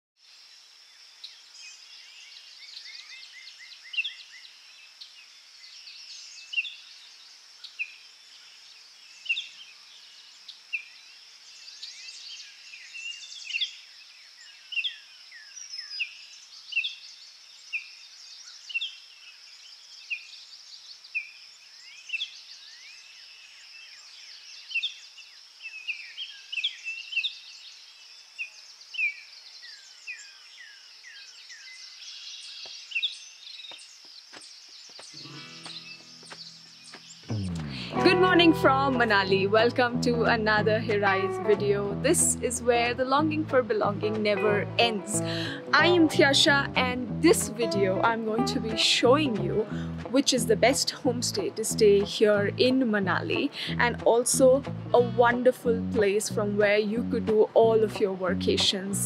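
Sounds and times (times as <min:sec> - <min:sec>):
birds chirping: 0:25.8 - 0:49.3.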